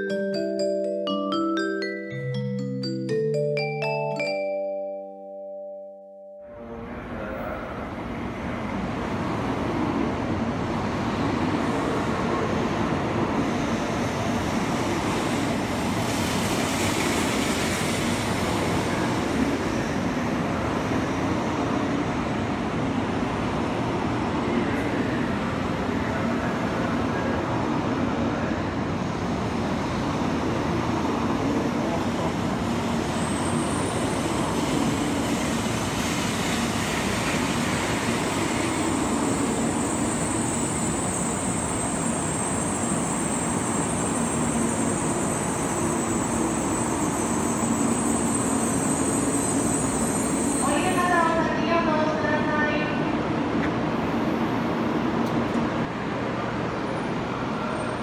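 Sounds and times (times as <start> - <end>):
train wheels rumbling on rail: 6.9 - 52.4.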